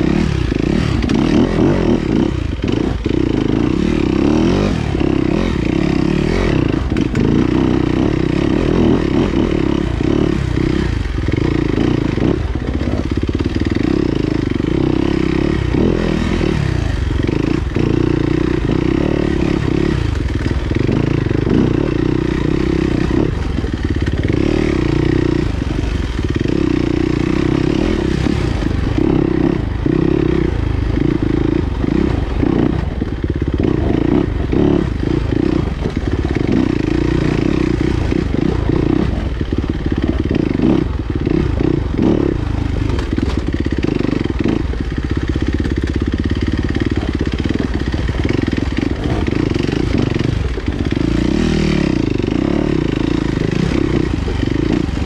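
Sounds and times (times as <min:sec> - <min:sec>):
motorcycle engine revving: 0:00.0 - 0:55.0
bike knocks and rattles: 0:41.6 - 0:51.5.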